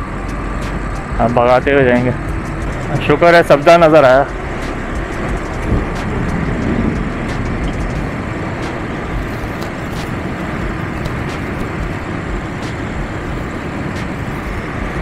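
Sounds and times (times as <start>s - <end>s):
motorcycle engine running: 0.0s - 15.0s
wind rushing on microphone: 0.0s - 15.0s.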